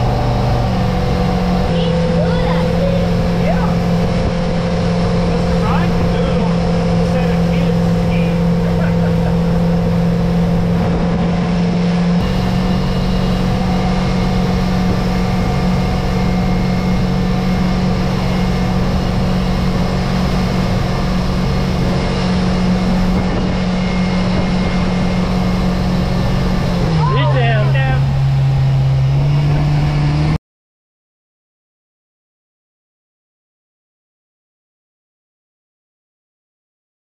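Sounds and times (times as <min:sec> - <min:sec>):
rushing water: 0:00.0 - 0:29.5
motorboat engine running: 0:00.0 - 0:30.4
wind: 0:00.0 - 0:30.4.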